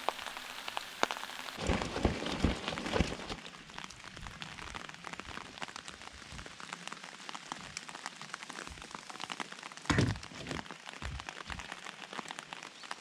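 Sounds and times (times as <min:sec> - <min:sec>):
rain pattering on wooden deck: 0:00.0 - 0:13.0
thump with brief rustle: 0:09.9 - 0:10.6.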